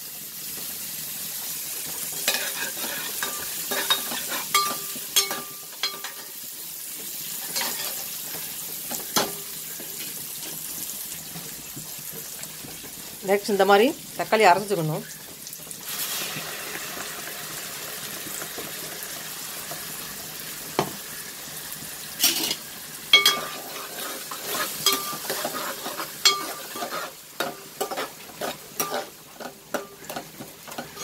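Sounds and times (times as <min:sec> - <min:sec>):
food sizzling in hot oil: 0:00.0 - 0:31.0
metal ladle scraping pan: 0:02.2 - 0:06.3, 0:22.2 - 0:22.6, 0:23.2 - 0:31.0.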